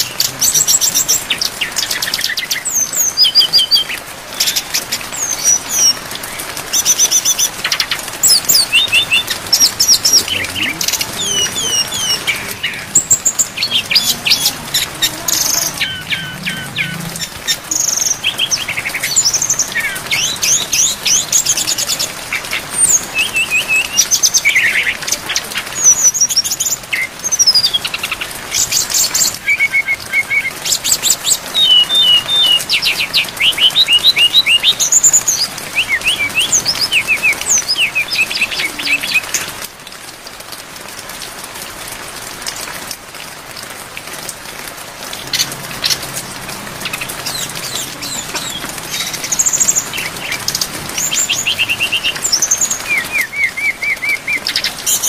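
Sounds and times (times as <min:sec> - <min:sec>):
rain hissing: 0:00.0 - 0:55.0
bird singing whistles and trills: 0:06.8 - 0:14.5, 0:22.8 - 0:25.0, 0:28.7 - 0:39.4, 0:46.9 - 0:55.0.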